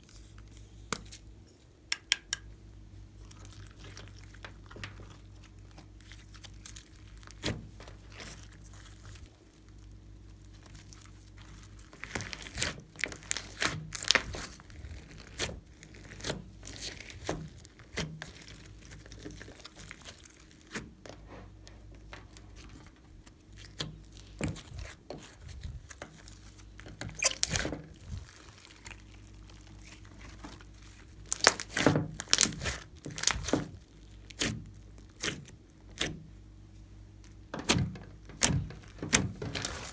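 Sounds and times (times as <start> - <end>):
slime popping and crackling: 3.2 - 20.9, 22.1 - 36.1.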